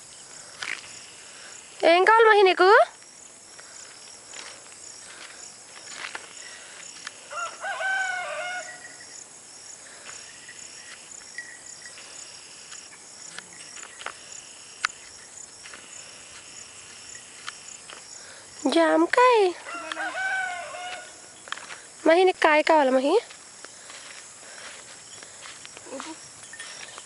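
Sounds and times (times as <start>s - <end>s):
insects chirring: 0.0s - 27.0s
rooster crowing: 7.2s - 9.0s, 19.6s - 21.3s.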